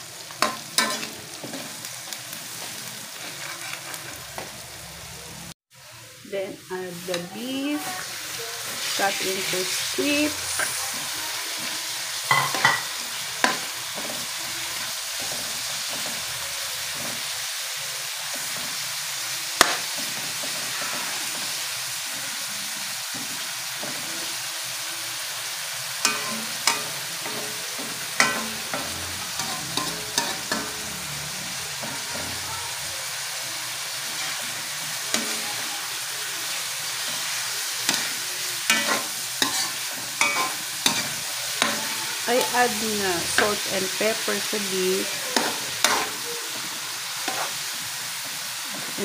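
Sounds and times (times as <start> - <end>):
meat sizzling in a wok: 0.0 - 49.0
metal spatula scraping a wok: 0.4 - 1.8, 2.6 - 4.4, 19.6 - 21.7, 26.0 - 32.5, 34.0 - 35.7, 36.9 - 48.2.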